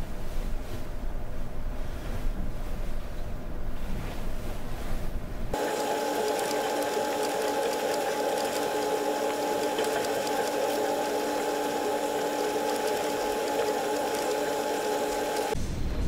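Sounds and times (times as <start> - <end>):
ship machinery humming: 5.6 - 15.6.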